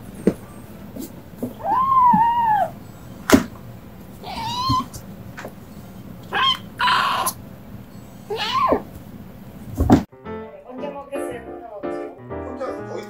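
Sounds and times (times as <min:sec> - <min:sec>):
kittens meowing: 0:01.6 - 0:02.9, 0:04.2 - 0:05.0, 0:06.2 - 0:07.4, 0:08.2 - 0:08.9.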